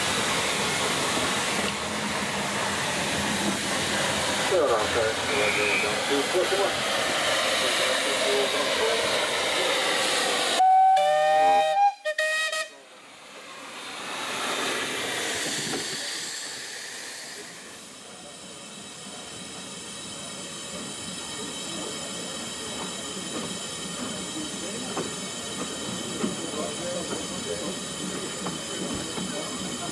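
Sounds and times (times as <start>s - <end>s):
loud steady steam hiss: 0.0s - 29.9s
steam whistle: 10.6s - 12.8s
soft steam hissing from cylinders: 14.8s - 29.9s.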